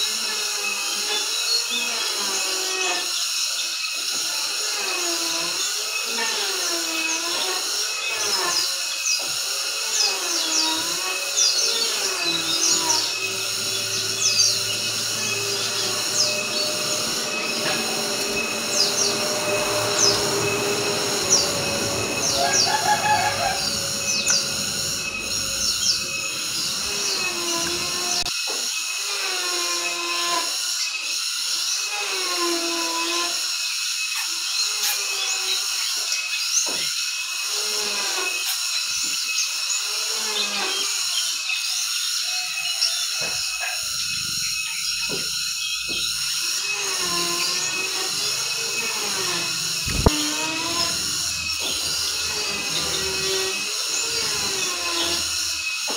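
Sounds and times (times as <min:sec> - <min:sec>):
high-pitched buzzing drone: 0:00.0 - 0:55.9
songbirds chirping: 0:10.0 - 0:28.3.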